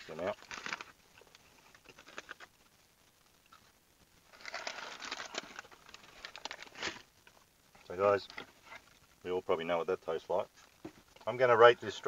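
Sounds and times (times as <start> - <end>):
paper bag rustling and crinkling: 0.0 - 2.5, 4.3 - 7.1.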